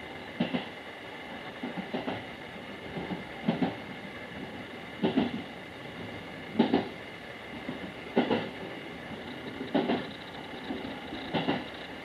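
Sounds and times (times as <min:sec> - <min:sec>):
train running rumble: 0:00.0 - 0:12.0
wheels clacking over rail joints: 0:08.2 - 0:12.0.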